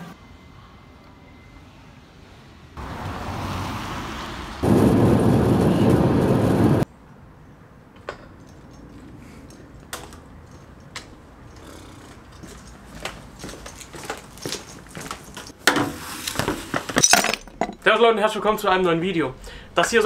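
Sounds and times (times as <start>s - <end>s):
car road noise: 2.8s - 6.9s.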